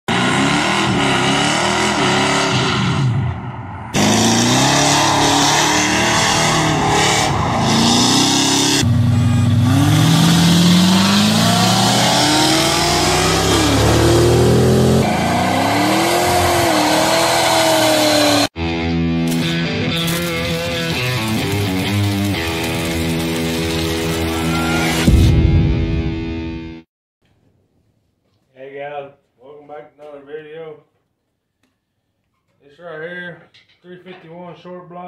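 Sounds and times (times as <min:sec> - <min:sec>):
car engines revving: 0:00.1 - 0:18.5.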